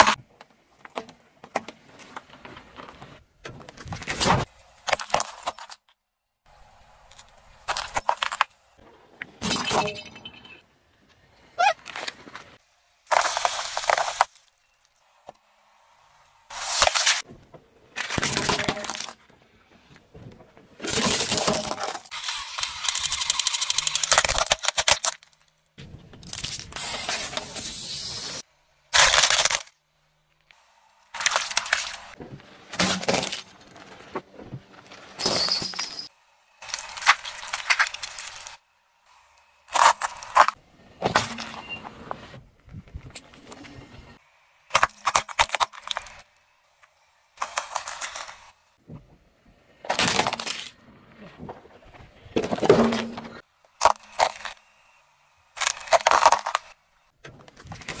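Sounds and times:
car tyre crushing objects: 11.8 - 15.4, 20.1 - 27.6, 28.9 - 29.8, 31.1 - 38.6, 39.6 - 42.4, 44.7 - 46.4, 49.6 - 54.8, 55.5 - 58.0.

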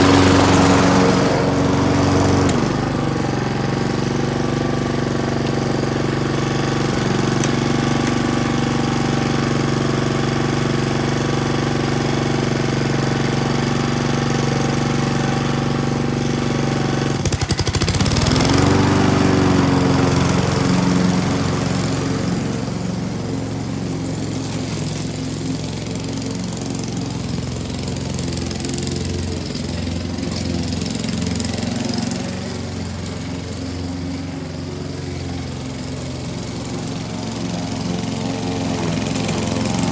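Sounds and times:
lawn mower engine running: 0.0 - 39.9.

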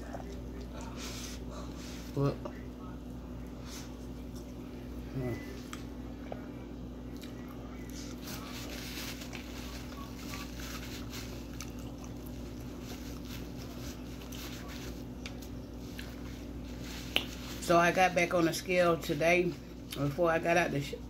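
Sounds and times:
person chewing food: 0.0 - 2.7, 3.9 - 17.6
steady low hum: 0.0 - 21.0.

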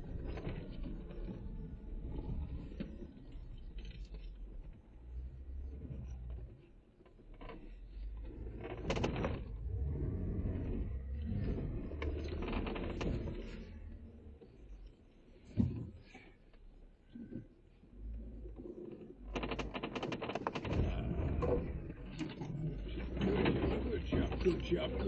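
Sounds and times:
suspension knocks and rattles: 0.0 - 16.3, 18.7 - 25.0
low engine rumble: 7.6 - 16.4, 20.7 - 25.0.

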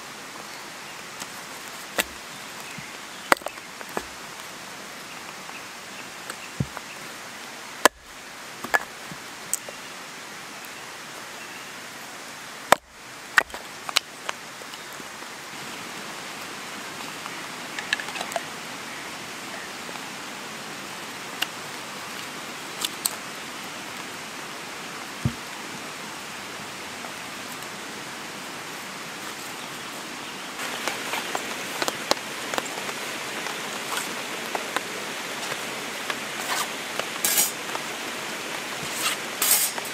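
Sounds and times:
rain in the forest: 0.0 - 39.9.

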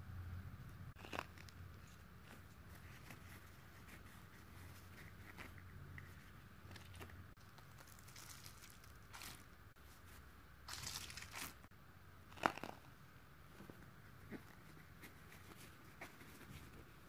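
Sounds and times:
paper rustle: 1.0 - 11.6
sharp paper crackle: 7.4 - 9.5, 10.7 - 11.7
tissue paper crinkling and tearing: 7.6 - 9.5, 10.7 - 11.6.

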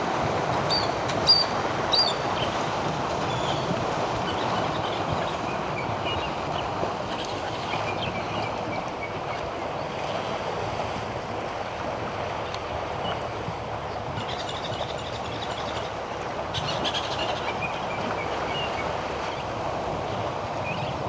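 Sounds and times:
elephants sloshing through water: 0.0 - 21.0.

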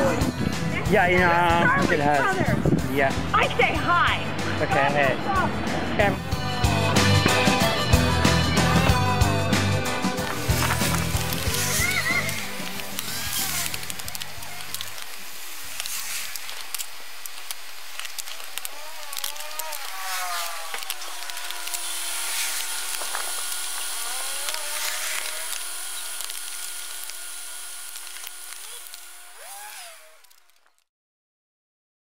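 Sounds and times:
scooter wheels rolling on concrete: 7.0 - 30.8
scattered clicks: 10.2 - 30.9.

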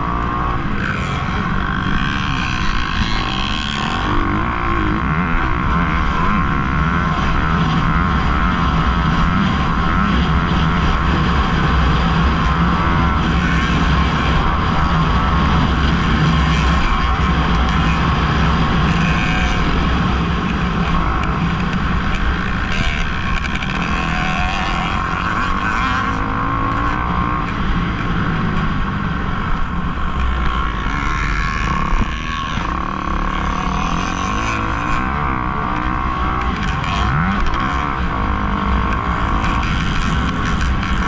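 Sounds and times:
motorcycle engine running hard: 0.0 - 41.0.

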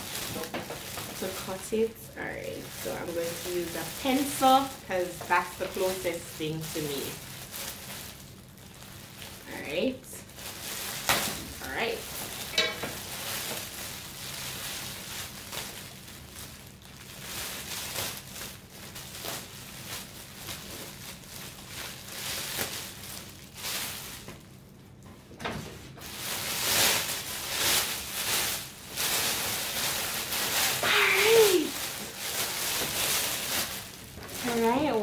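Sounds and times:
cellophane crinkling: 0.0 - 35.0.

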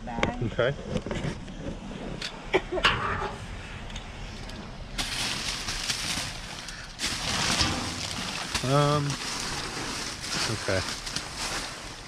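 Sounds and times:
plastic bags crinkling: 5.0 - 12.0.

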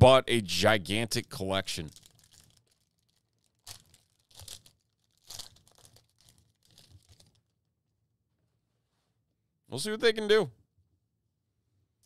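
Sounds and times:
foil wrapper tearing and crinkling: 1.8 - 7.5.

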